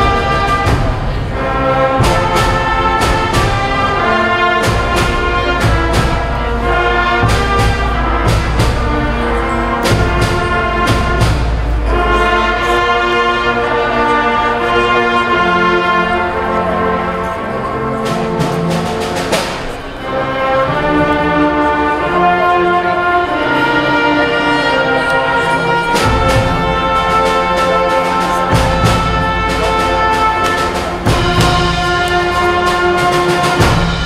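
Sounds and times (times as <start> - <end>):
drum strokes: 0.0 - 13.4, 17.8 - 21.3, 25.4 - 34.0
concert band playing: 0.0 - 34.0.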